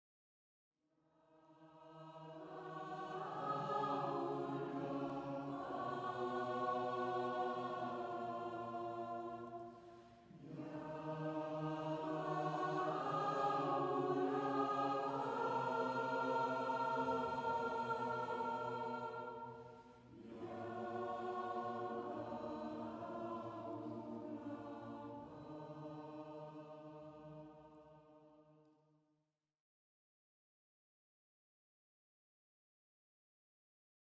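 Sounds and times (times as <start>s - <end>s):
choir singing held chords: 1.5s - 28.2s.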